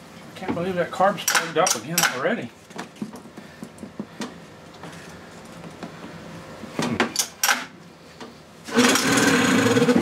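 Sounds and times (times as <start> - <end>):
steady low hum: 0.0 - 8.7.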